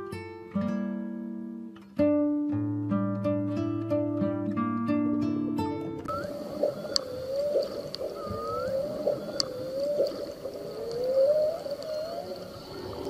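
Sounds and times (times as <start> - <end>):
plucked-string music: 0.0 - 6.1
hissy underwater background: 6.1 - 13.0
sharp clicks: 6.1 - 13.0
whale calls: 6.1 - 13.0.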